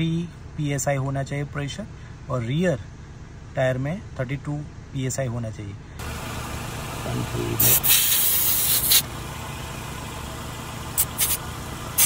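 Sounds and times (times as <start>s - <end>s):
air hissing from tire valve: 7.6s - 9.1s, 10.9s - 12.0s.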